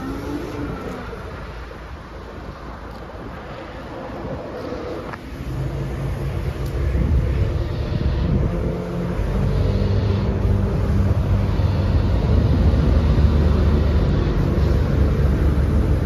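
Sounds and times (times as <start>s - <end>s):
excavator diesel engine running: 4.6s - 16.0s.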